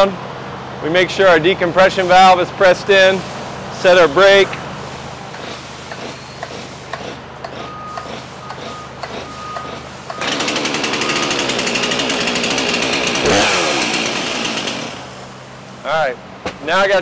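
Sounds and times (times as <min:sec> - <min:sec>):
chainsaw engine buzzing: 0:05.4 - 0:15.5.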